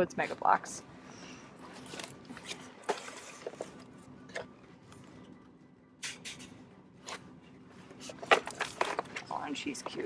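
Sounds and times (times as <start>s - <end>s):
faint background hum: 0.0s - 10.0s.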